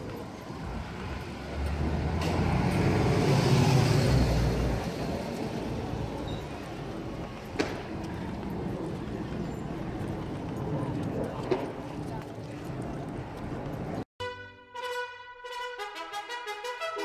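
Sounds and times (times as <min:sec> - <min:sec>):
street traffic: 0:00.0 - 0:14.6
vehicle passing close by: 0:00.6 - 0:06.2.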